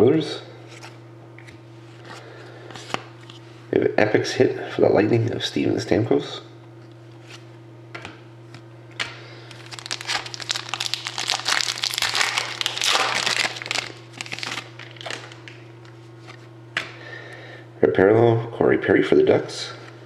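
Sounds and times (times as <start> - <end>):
steady low hum: 0.0 - 20.0
foil pack crinkling and tearing: 9.5 - 15.9.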